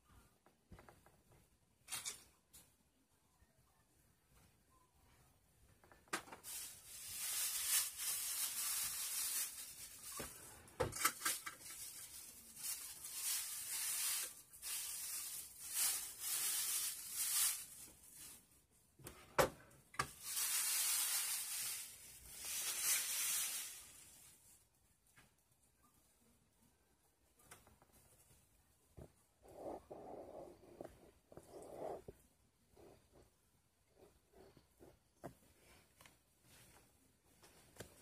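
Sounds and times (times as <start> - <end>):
rustling of rummaged things: 5.7 - 25.5, 34.9 - 38.0.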